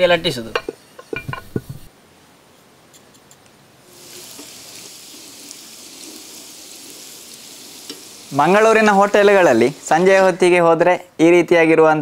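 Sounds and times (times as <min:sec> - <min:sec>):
hot oil sizzling: 0:03.9 - 0:10.8.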